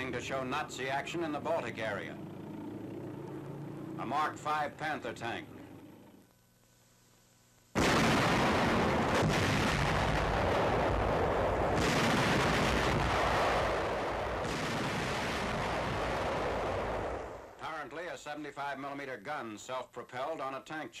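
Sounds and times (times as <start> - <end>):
artillery fire and explosions: 7.8 - 17.5.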